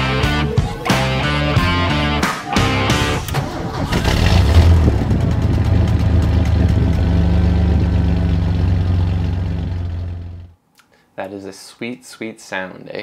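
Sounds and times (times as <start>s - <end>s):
engine idling rumble: 2.8s - 10.5s
engine starting: 2.9s - 6.8s.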